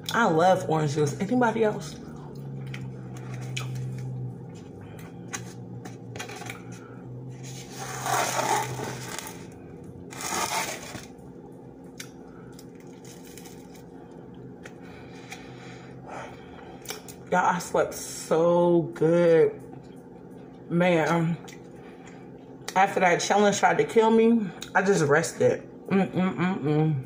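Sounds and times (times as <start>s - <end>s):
steady low hum: 0.0s - 27.0s
biting and chewing: 2.1s - 6.8s
sandwich on paper plate: 7.4s - 9.5s, 10.1s - 11.1s.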